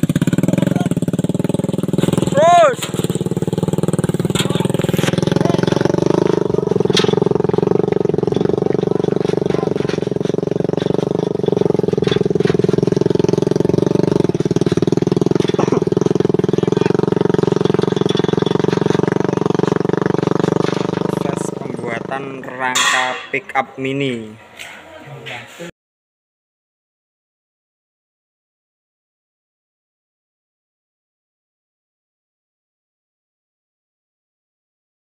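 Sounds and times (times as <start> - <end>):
small motorcycle engine running: 0.0 - 23.8.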